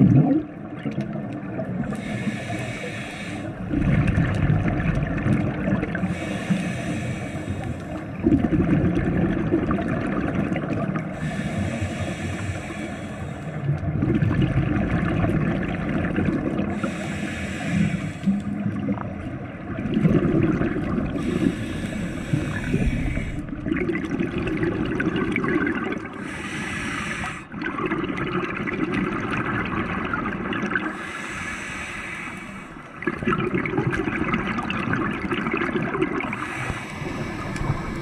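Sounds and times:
exhaled bubbles rumbling: 0.0 - 2.5, 3.4 - 12.9, 13.5 - 17.0, 17.8 - 38.0
regulator hiss on inhale: 1.9 - 3.7, 6.0 - 8.1, 11.1 - 13.7, 16.7 - 18.5, 21.2 - 23.6, 26.2 - 27.5, 30.9 - 33.0, 36.3 - 38.0.

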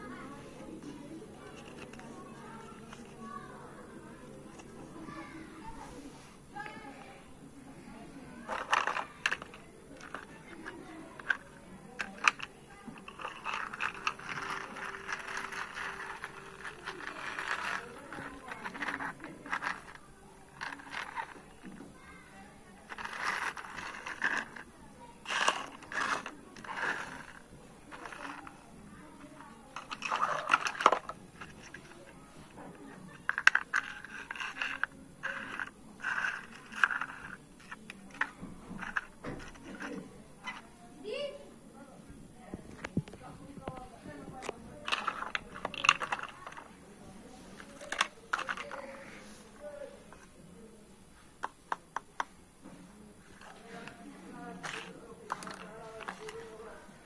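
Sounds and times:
plastic parts clicking: 1.4 - 3.2, 8.4 - 22.0, 22.9 - 28.6, 29.2 - 40.7, 42.8 - 46.8, 47.6 - 48.9, 54.6 - 56.6
plastic wheels rolling on concrete: 8.5 - 22.0, 22.8 - 40.6, 53.4 - 56.6.

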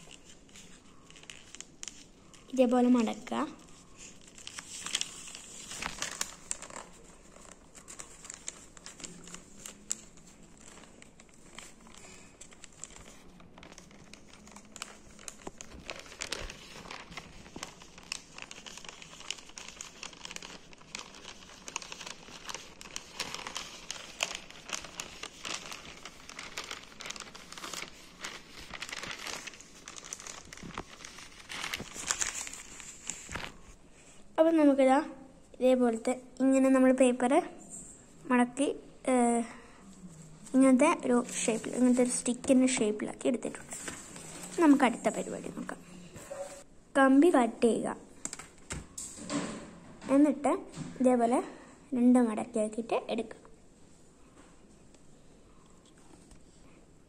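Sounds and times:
newspaper rustling and crinkling: 0.0 - 34.1, 40.4 - 46.7.

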